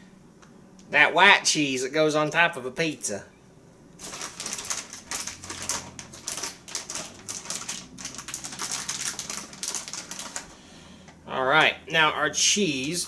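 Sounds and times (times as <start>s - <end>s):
plastic bag crinkling: 4.0s - 10.6s.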